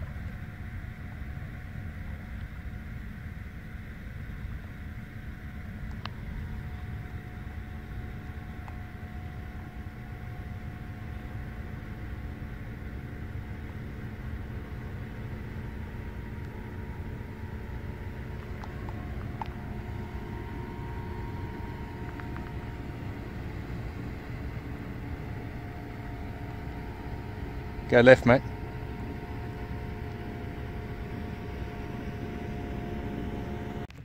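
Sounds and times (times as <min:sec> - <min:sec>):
faint hum: 0:00.0 - 0:34.0
small click: 0:05.8 - 0:06.2.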